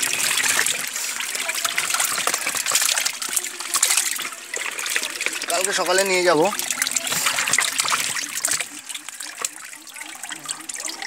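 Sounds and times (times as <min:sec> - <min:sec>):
fish thrashing and splashing: 0:00.0 - 0:11.0
plastic basket scooping water: 0:00.0 - 0:11.0.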